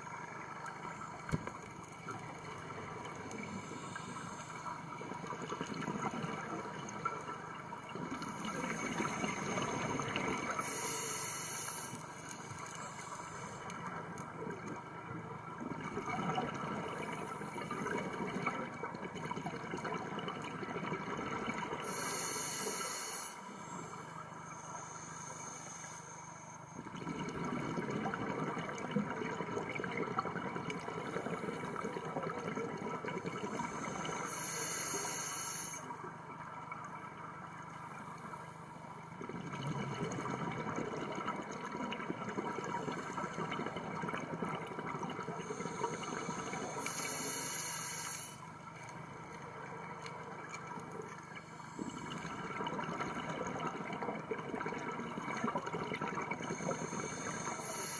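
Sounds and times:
high hiss of inhalation: 10.6 - 12.0, 21.9 - 23.5, 34.1 - 35.9, 45.7 - 48.4, 56.6 - 57.9.

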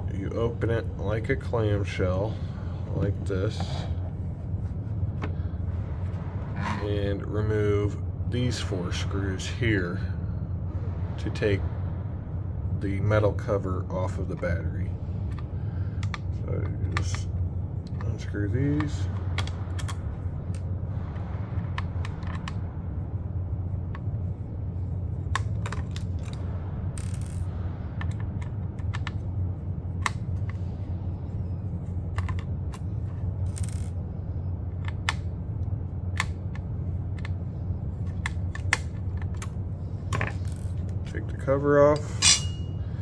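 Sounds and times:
steady low hum: 0.0 - 43.0
metal scraping: 42.0 - 42.8.

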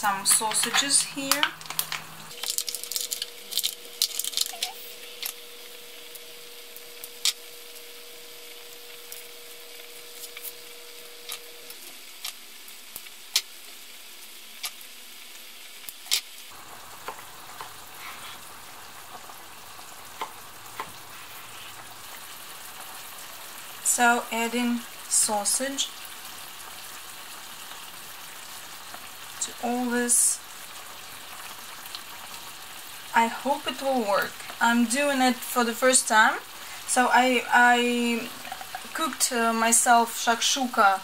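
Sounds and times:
food sizzling in a pan: 0.0 - 41.0
wrapper being unwrapped: 0.6 - 5.4.

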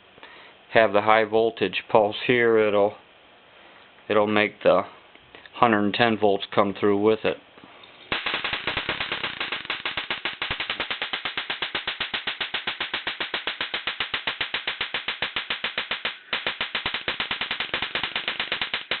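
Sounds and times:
high-voltage sparks snapping: 8.1 - 19.0.

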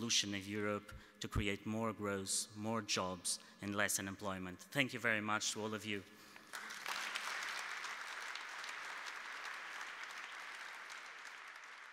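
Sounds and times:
audience applauding: 6.5 - 11.9.

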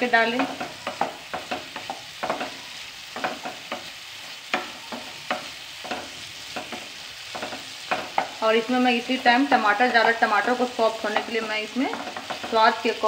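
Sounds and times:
faint frying sizzle: 0.0 - 13.0
wooden spatula scraping pan: 11.1 - 12.7.

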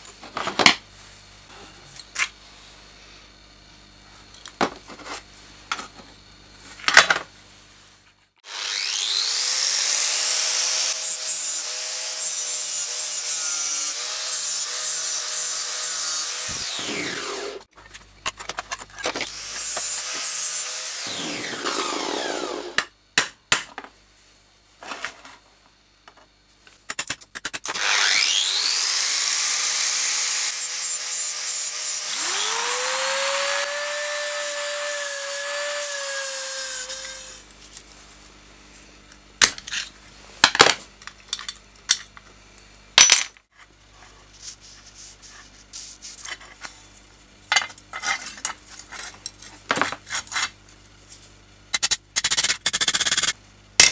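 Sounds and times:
power tool grinding metal: 8.4 - 17.6, 19.3 - 22.8, 27.7 - 37.4.

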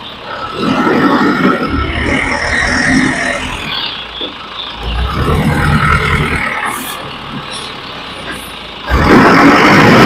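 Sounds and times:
truck engine running hard: 0.0 - 10.0.

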